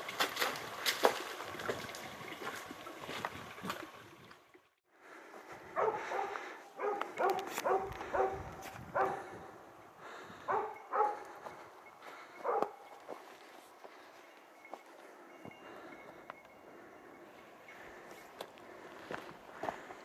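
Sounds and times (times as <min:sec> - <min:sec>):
dog barking: 0:05.7 - 0:09.5, 0:10.4 - 0:11.4, 0:12.4 - 0:12.8.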